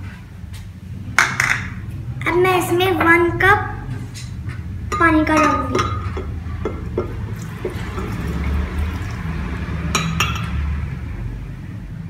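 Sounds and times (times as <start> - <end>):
water pouring into blender jar: 7.3 - 9.6.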